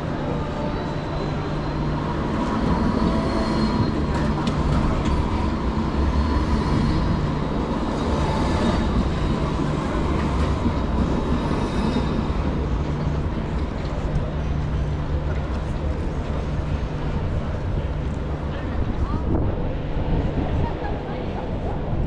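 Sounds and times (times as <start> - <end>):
tram electric hum: 0.0 - 22.0
tram wheels on rails: 0.0 - 22.0.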